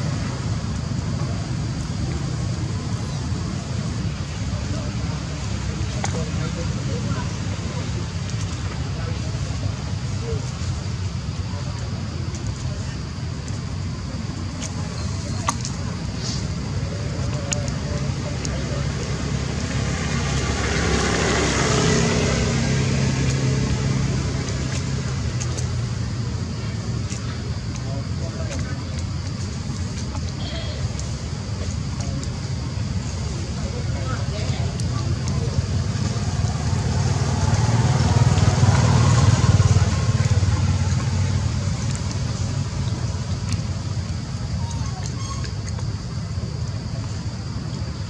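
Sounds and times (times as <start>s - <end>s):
motor engine humming: 0.0s - 48.0s
vehicle engine passing by: 18.2s - 25.8s, 35.1s - 43.2s.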